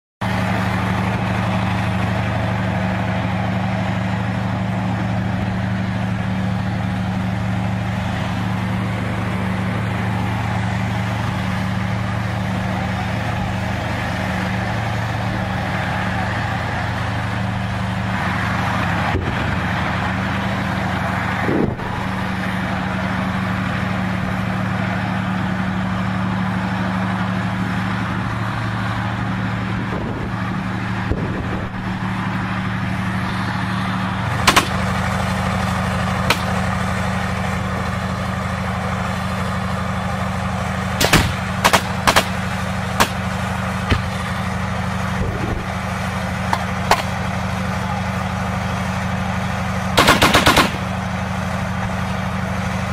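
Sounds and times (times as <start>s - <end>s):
tank engine running: 0.2s - 52.9s
gunshots: 34.4s - 35.0s, 41.0s - 42.4s, 43.0s - 43.2s, 50.0s - 50.9s.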